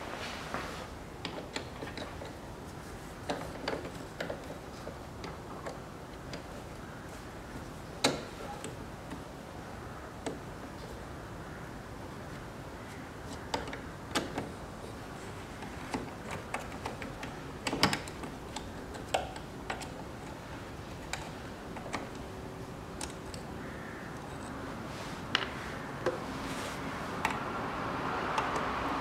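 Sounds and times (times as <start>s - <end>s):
soft rushing noise: 0.0s - 1.0s, 24.4s - 29.0s.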